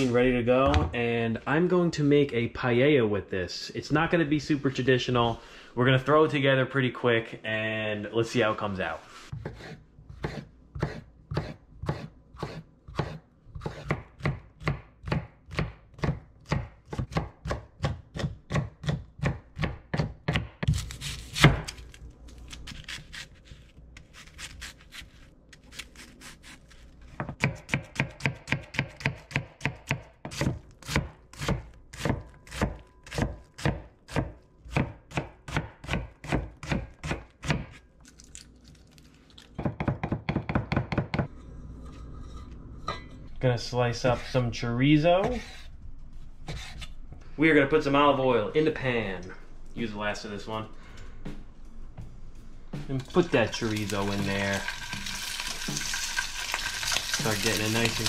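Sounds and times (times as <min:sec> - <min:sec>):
knife chopping on wooden board: 0:09.4 - 0:21.7, 0:27.2 - 0:37.8, 0:39.6 - 0:41.3.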